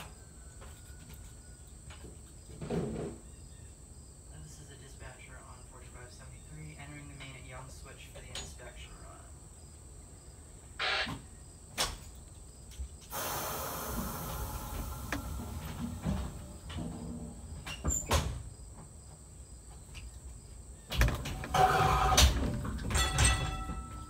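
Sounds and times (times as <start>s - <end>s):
hiss: 13.1s - 16.4s.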